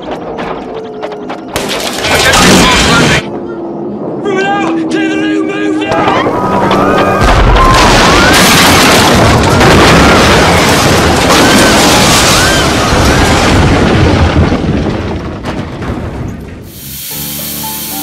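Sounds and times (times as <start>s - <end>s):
crackles: 0.0s - 3.3s, 5.9s - 17.5s
rising and falling cries: 3.3s - 8.7s
explosion rumbling blast: 5.9s - 16.7s.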